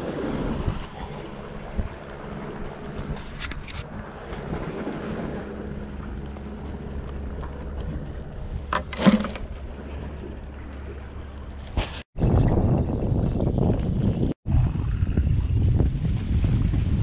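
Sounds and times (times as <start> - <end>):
wind buffeting microphone: 12.2 - 17.0.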